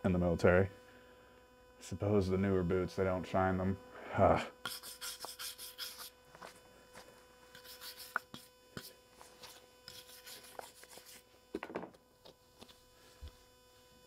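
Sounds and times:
electrical hum: 0.0 - 14.0
wire brush scrubbing metal: 4.7 - 6.1.

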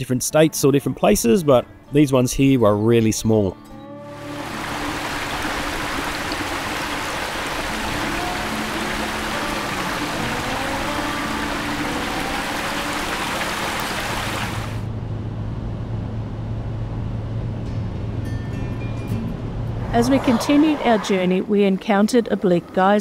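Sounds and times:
low hum of car driving: 3.8 - 23.0
river rushing over stones: 4.2 - 14.8.

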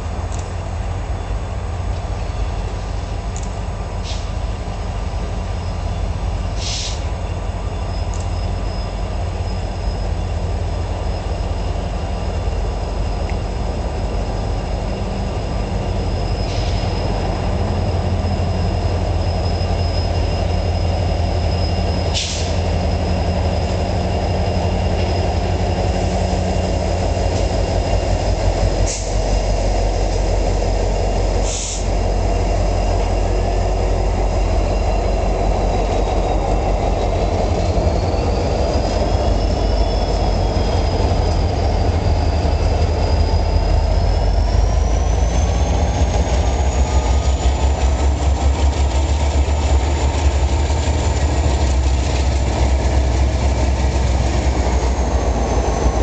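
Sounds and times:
diesel locomotive engine rumble: 0.0 - 56.0
high wheel squeal: 4.0 - 56.0.

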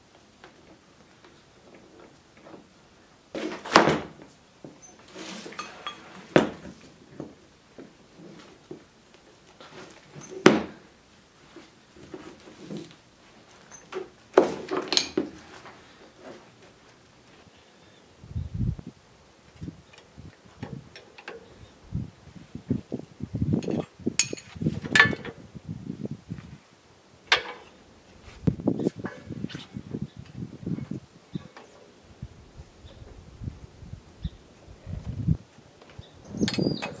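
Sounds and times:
metal fittings clanking on wood: 4.8 - 6.6, 13.7 - 15.4, 23.6 - 25.4, 36.4 - 37.0.

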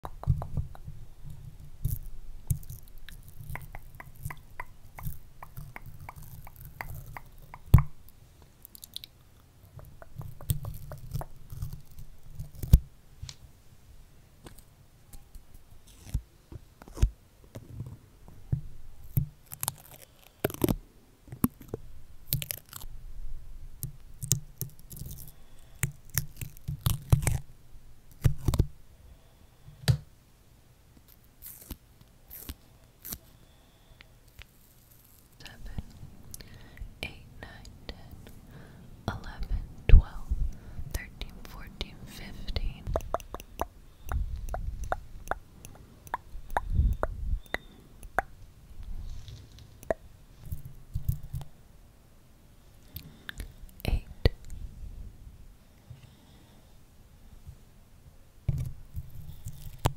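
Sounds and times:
stickers crackling on microphone: 1.8 - 9.1, 9.8 - 12.8, 41.0 - 48.3.

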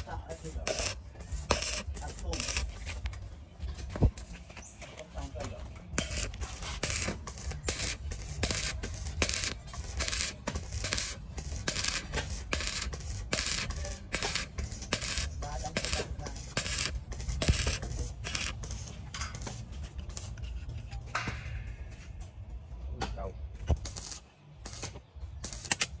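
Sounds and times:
rhythmic rasping strokes: 5.9 - 20.9.

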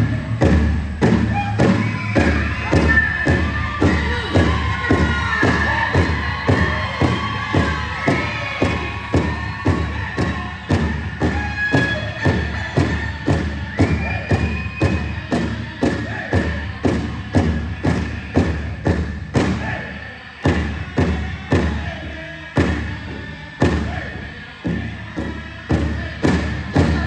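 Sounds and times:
big drum beating: 0.0 - 19.8
singers' high voices: 1.0 - 27.0.

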